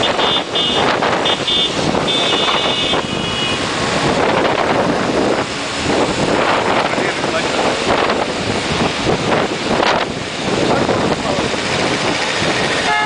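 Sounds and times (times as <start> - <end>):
two-stroke moped engines running: 0.0 - 13.0
wind noise on microphone: 0.0 - 13.0.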